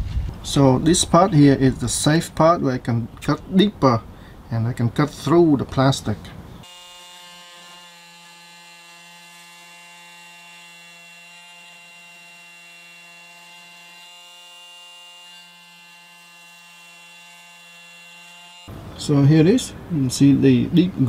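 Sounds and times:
multi-tool cutting plastic: 6.6s - 18.7s.

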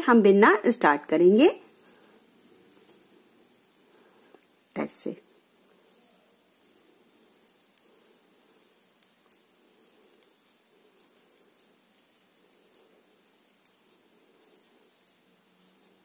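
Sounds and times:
low room hum: 0.0s - 16.0s
knitting needles clicking: 0.8s - 16.0s.

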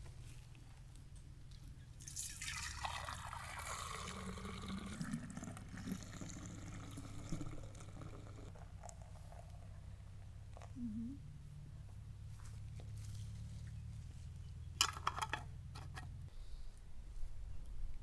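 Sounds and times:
milk pouring into a jar: 2.0s - 9.7s.

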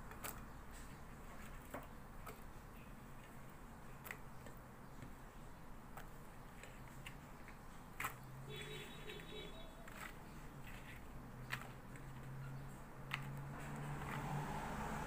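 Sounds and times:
vegetables clicking on ceramic plate: 5.9s - 14.2s.

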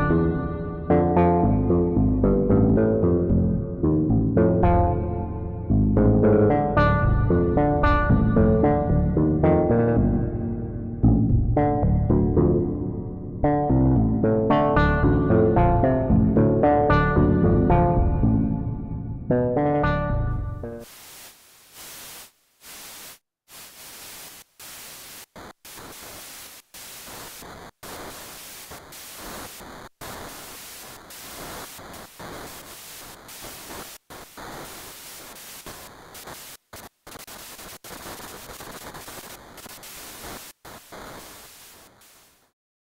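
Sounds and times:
synthesizer white noise hiss: 20.7s - 42.6s.

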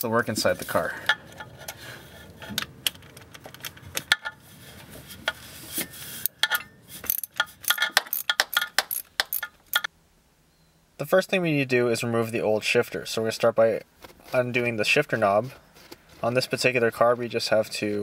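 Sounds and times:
wrench clicking on metal bolt: 6.2s - 9.9s.

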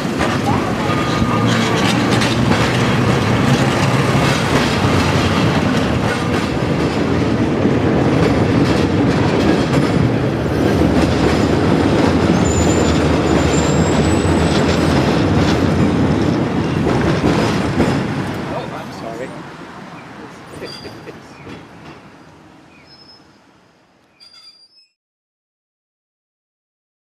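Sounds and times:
steel wheels rumbling on rails: 0.0s - 23.2s
faint high wheel squeal: 12.4s - 14.3s, 20.6s - 21.4s, 22.7s - 23.4s, 24.1s - 25.0s.

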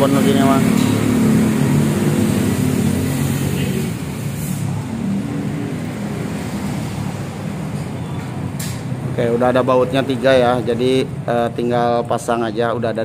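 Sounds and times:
vehicle engine running: 0.0s - 8.4s.

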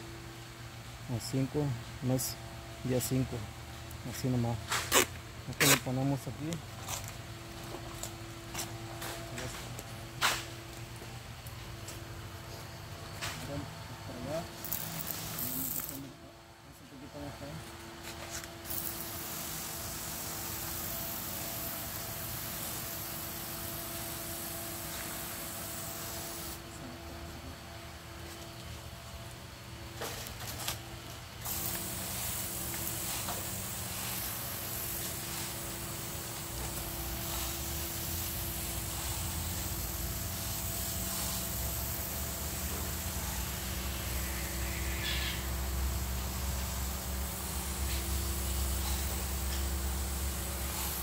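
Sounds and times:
steady low hum: 0.0s - 51.0s
spray wand hissing: 14.6s - 16.0s, 18.6s - 26.6s, 31.4s - 51.0s.

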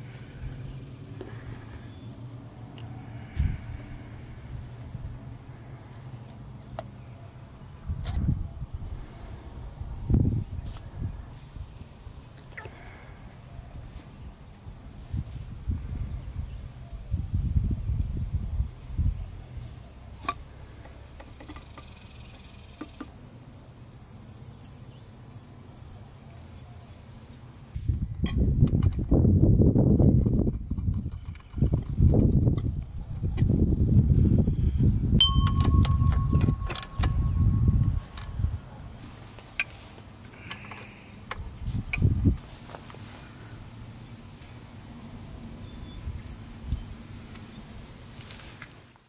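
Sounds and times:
tools clinking: 35.2s - 38.4s.

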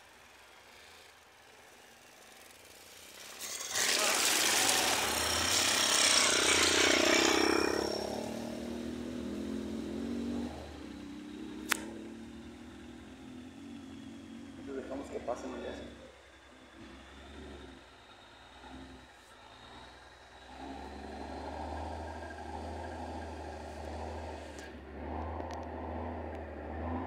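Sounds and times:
motorcycle passing: 0.0s - 27.0s
truck engine running low: 0.0s - 27.0s
sharp click: 11.6s - 12.0s.

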